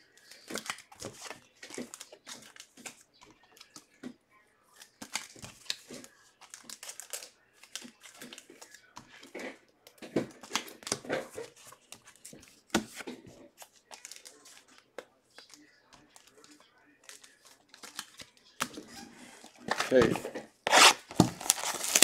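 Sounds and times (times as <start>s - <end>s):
plastic sleeves crinkling: 10.4s - 18.3s, 19.4s - 22.0s.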